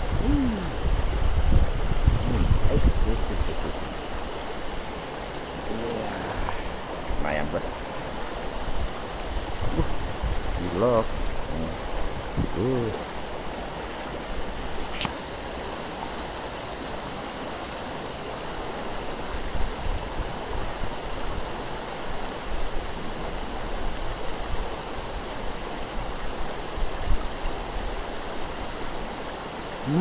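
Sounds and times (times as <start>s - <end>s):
river water rushing: 0.0s - 30.0s
sharp click: 14.9s - 15.2s.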